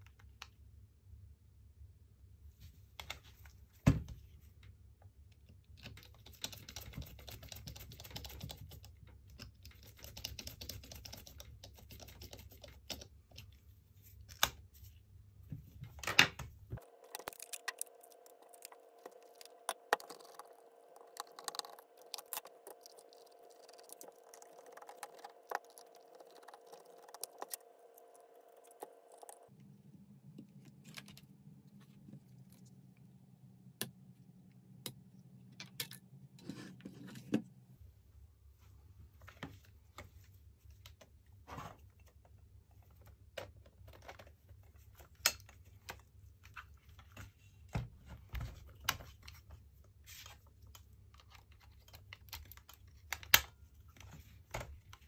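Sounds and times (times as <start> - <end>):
faint steady hum: 0.0 - 55.0.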